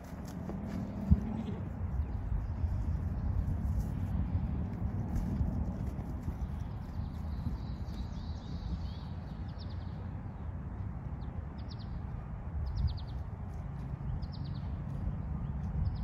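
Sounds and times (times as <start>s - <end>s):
steady low rumble: 0.0s - 16.0s
small birds chirping: 6.2s - 10.1s.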